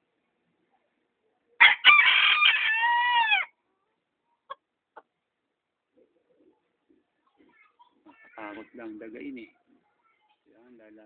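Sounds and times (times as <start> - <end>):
rooster crowing: 1.6 - 3.5.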